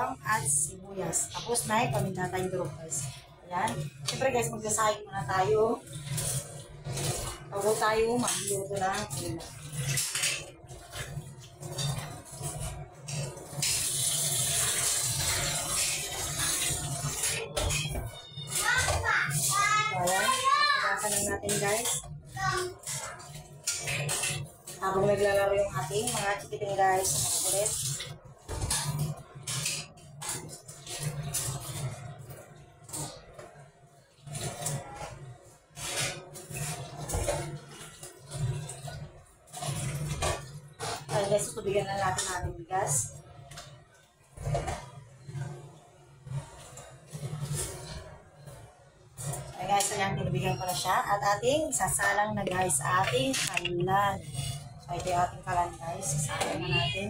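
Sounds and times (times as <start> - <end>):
tap water running into metal pot: 13.1 - 17.4.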